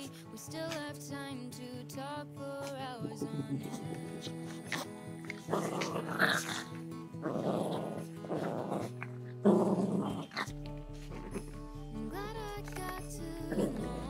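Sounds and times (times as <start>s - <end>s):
background music: 0.0s - 14.0s
small dogs growling: 3.0s - 14.0s.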